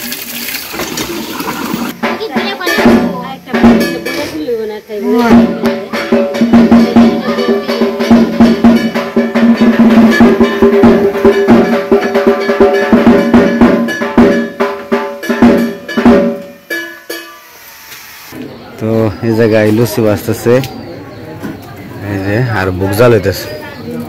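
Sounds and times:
rapid drumming: 0:00.7 - 0:17.4
clanging metal bell: 0:02.6 - 0:04.4, 0:05.2 - 0:17.5.

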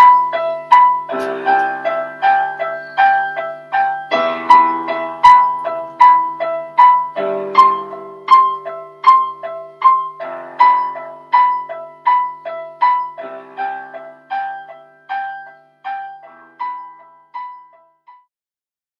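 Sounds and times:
slow solo piano: 0:00.0 - 0:18.3.

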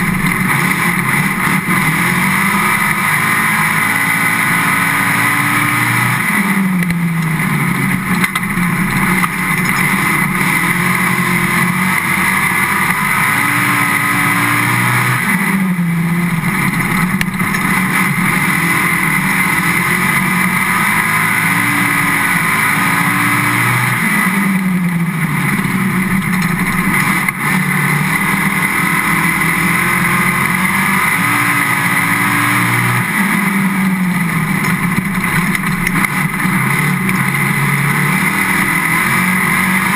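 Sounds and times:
race car engine running hard: 0:00.0 - 0:39.9.

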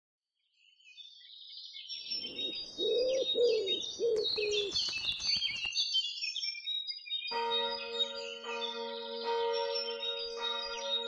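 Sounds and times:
songbirds chirping: 0:01.0 - 0:07.0
dove cooing: 0:02.2 - 0:04.8
faint clicks: 0:04.1 - 0:05.8.

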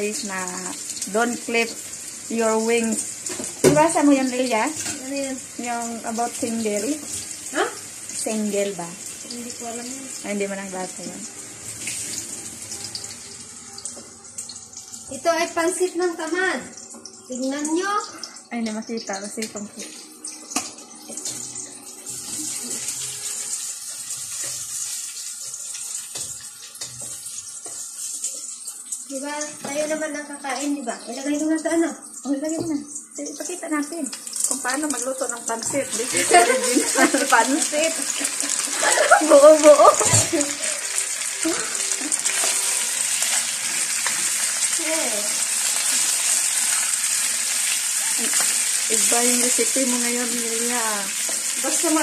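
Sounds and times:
chicken and onions sizzling in wok: 0:00.0 - 0:52.0
water running from a tap: 0:00.0 - 0:52.0
spatula stirring against pan: 0:22.0 - 0:29.0.

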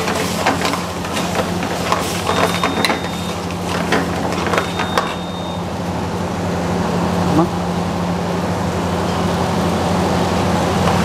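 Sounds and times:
ladle scraping frying pan: 0:00.0 - 0:05.3.

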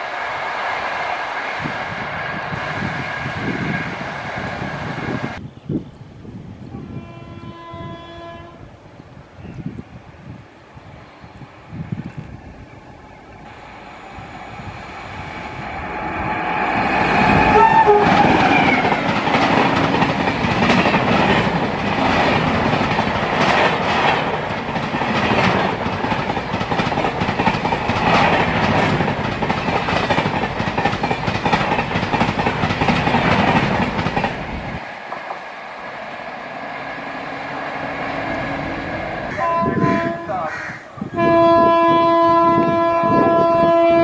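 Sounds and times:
train horn: 0:06.7 - 0:08.7, 0:17.2 - 0:19.0, 0:38.4 - 0:44.0
train wheels clickety-clack: 0:17.0 - 0:35.5.

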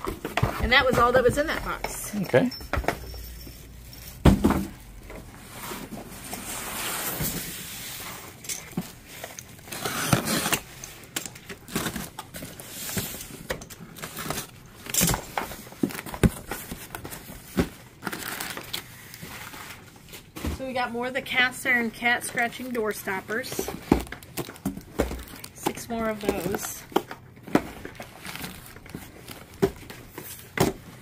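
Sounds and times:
cardboard scraping: 0:03.8 - 0:08.3.

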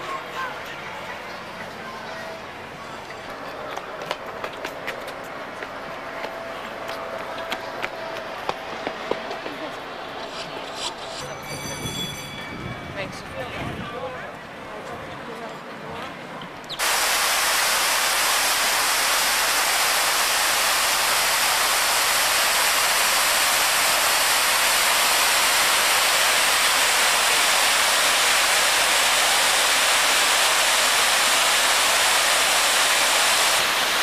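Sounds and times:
fountain water cascading: 0:16.8 - 0:34.0.

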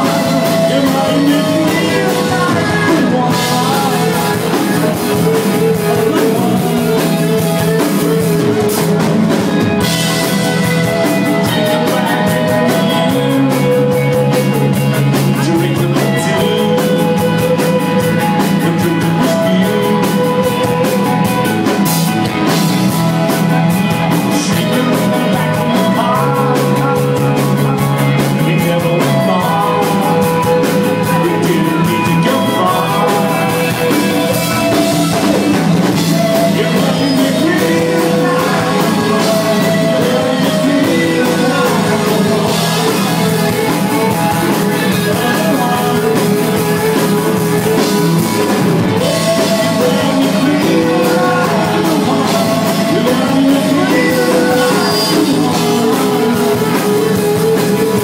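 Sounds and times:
drums: 0:00.0 - 0:58.0
electric guitar: 0:00.0 - 0:58.0
man singing into microphone: 0:00.0 - 0:58.0.

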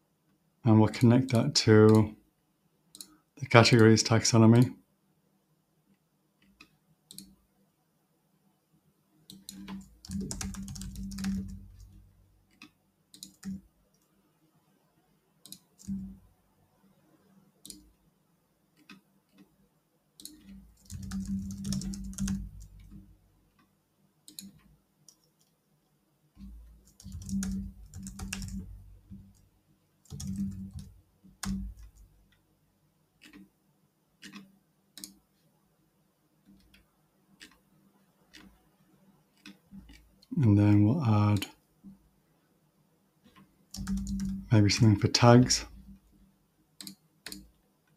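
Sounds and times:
computer keyboard typing: 0:09.3 - 0:13.6, 0:15.5 - 0:16.2, 0:17.6 - 0:17.9, 0:20.2 - 0:23.1, 0:24.3 - 0:25.4, 0:26.4 - 0:32.2, 0:34.2 - 0:35.2, 0:43.7 - 0:46.0, 0:46.8 - 0:47.5.

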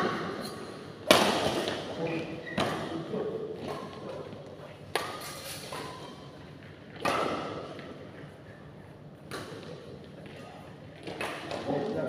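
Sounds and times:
racket hitting shuttlecock: 0:01.0 - 0:01.9, 0:04.9 - 0:06.1, 0:07.0 - 0:07.9, 0:09.3 - 0:09.8.

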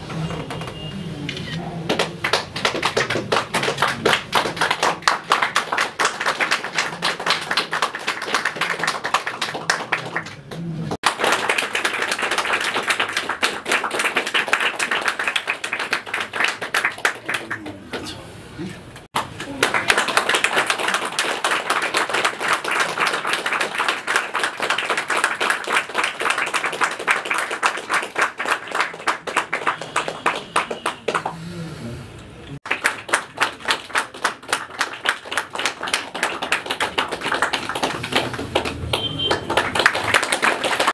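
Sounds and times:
people clapping in rhythm: 0:00.0 - 0:01.1, 0:01.7 - 0:18.2, 0:19.0 - 0:31.5, 0:32.6 - 0:40.9.

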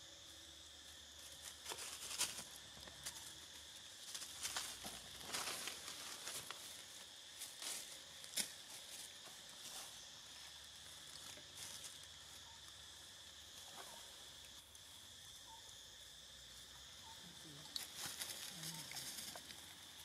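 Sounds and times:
high insect drone: 0:00.0 - 0:20.0
twigs and leaves rustling: 0:01.0 - 0:12.8, 0:17.7 - 0:20.0.

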